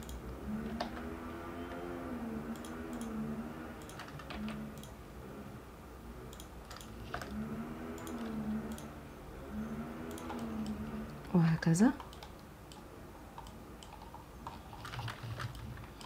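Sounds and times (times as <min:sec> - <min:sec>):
low wavering hum: 0:00.0 - 0:11.4
mouse and keyboard clicks: 0:02.5 - 0:03.2, 0:03.8 - 0:05.0, 0:06.3 - 0:08.9, 0:10.0 - 0:10.8, 0:12.0 - 0:16.0.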